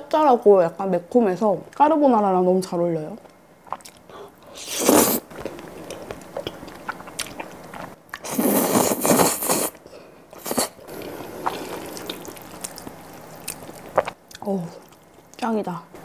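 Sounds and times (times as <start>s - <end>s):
wet chewing: 3.6s - 15.5s
slurping noodles: 4.6s - 5.3s, 8.2s - 9.8s, 10.4s - 12.8s.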